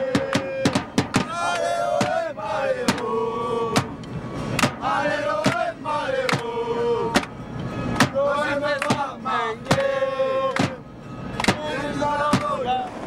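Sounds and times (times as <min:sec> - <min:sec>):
drum beating steadily: 0:00.0 - 0:03.0
crowd chanting: 0:00.0 - 0:13.0.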